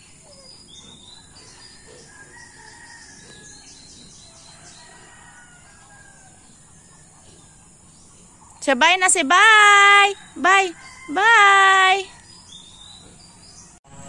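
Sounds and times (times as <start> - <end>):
small bird chirping: 0.0 - 13.8
faint rooster crowing: 1.1 - 7.9, 10.1 - 13.7.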